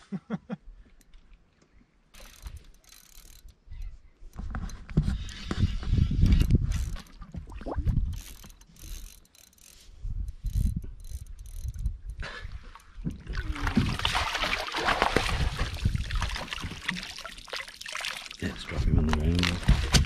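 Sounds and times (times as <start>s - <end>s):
water splashing and dripping: 12.7s - 20.0s.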